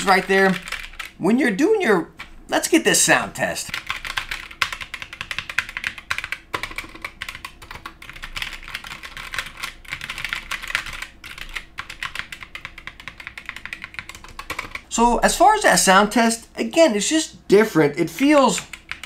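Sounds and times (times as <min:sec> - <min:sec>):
mechanical keyboard typing: 0:00.0 - 0:01.2, 0:03.7 - 0:14.9, 0:18.2 - 0:19.0.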